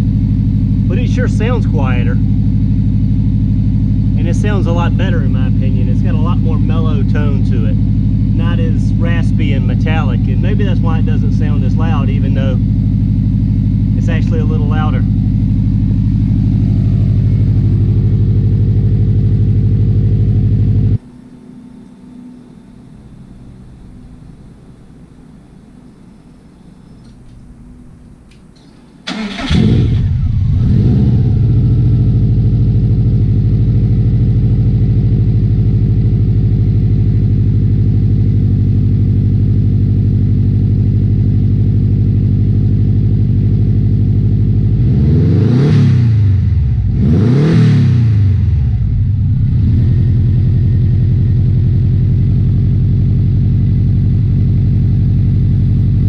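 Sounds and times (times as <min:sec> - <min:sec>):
car engine starting and idling: 0:00.0 - 0:56.0
engine revving: 0:00.8 - 0:21.0, 0:29.0 - 0:39.6, 0:41.3 - 0:52.5.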